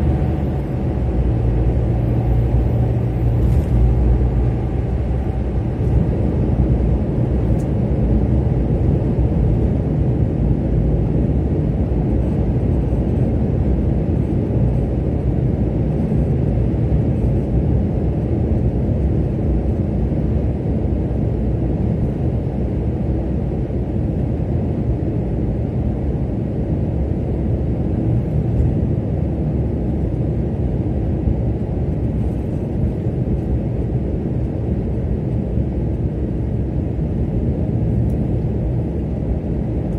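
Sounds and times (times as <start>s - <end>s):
car driving through tunnel: 0.0s - 8.1s.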